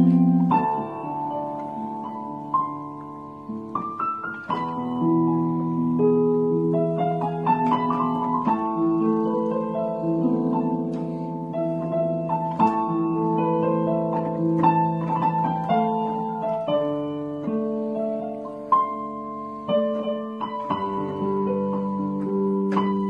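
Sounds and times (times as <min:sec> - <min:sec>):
electronic keyboard piano melody: 0:00.0 - 0:23.0.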